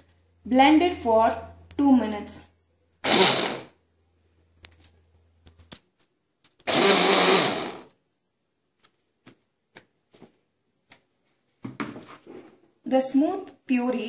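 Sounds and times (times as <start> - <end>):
hand blender chopping: 3.0 - 3.7, 6.7 - 7.9.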